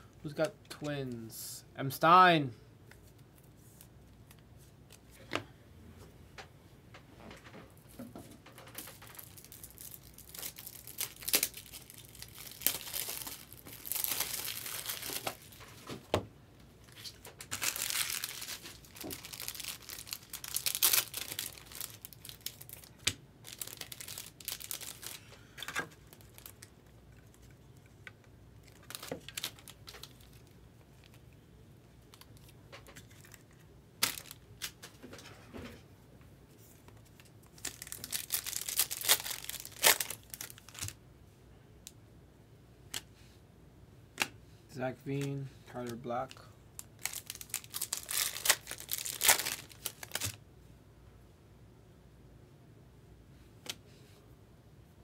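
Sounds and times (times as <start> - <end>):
wrappers tearing and crinkling: 8.7 - 15.9, 16.8 - 27.5, 28.6 - 31.2, 32.1 - 34.8, 37.4 - 41.0, 46.8 - 50.4.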